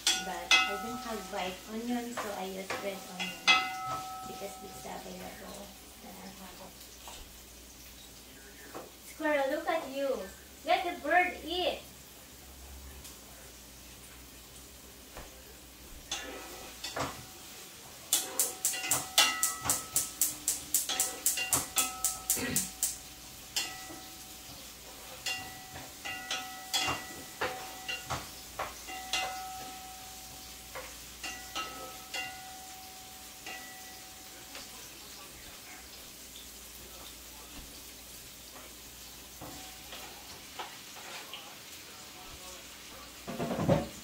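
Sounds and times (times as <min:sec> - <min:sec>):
wooden spatula knocking on pan: 0:18.1 - 0:22.7, 0:25.2 - 0:29.9.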